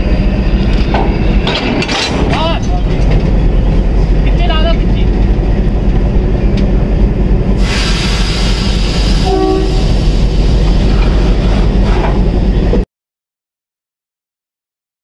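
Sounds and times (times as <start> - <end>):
diesel locomotive engine drone: 0.0 - 12.9
rushing hiss: 7.6 - 11.4
locomotive horn note: 9.1 - 10.0.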